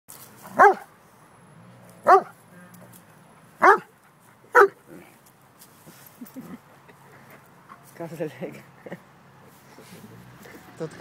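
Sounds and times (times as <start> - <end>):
dog barking: 0.5 - 0.9, 2.0 - 2.4, 3.6 - 3.9, 4.5 - 4.8.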